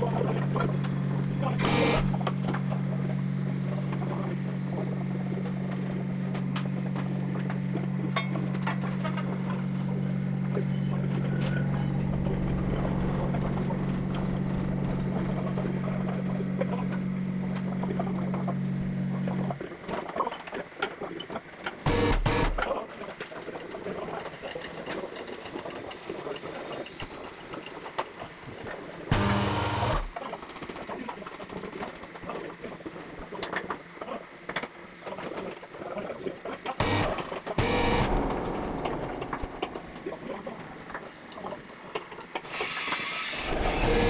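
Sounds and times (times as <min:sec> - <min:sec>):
electric machine hum: 0:00.0 - 0:19.9, 0:21.7 - 0:22.8, 0:28.3 - 0:30.8, 0:36.7 - 0:44.0.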